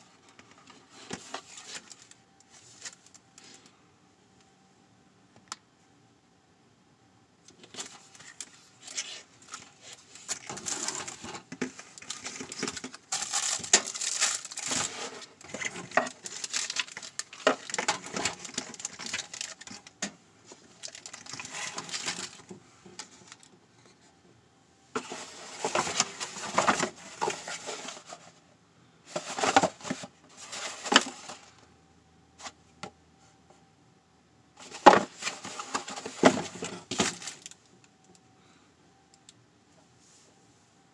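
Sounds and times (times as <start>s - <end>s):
plastic packaging crinkling: 7.6s - 23.5s, 25.0s - 28.2s, 34.6s - 37.6s.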